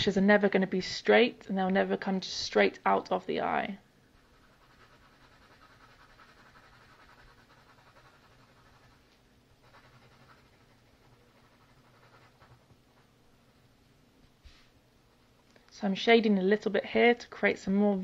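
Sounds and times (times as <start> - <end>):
pencil scratching on paper: 4.2 - 13.1.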